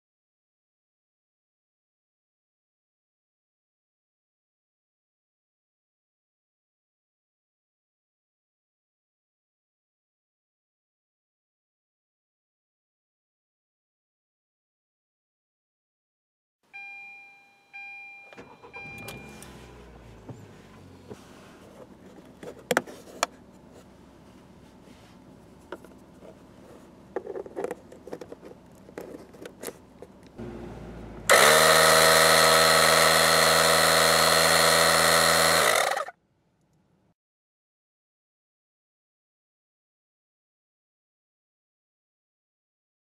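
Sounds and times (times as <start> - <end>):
car chime beeps: 16.7 - 20.1
car engine starting and idling: 18.2 - 22.7, 29.5 - 36.1
air compressor buzzing: 30.4 - 36.1.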